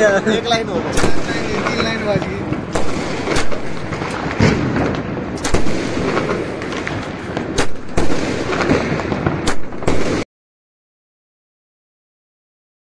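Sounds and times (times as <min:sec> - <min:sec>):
firecrackers crackling: 0:00.0 - 0:10.3
sharp bangs: 0:00.5 - 0:10.3.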